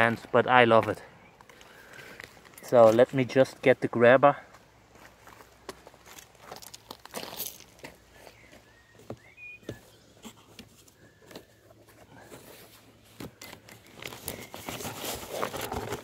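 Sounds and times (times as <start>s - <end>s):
foam packing rustling: 12.1s - 16.0s.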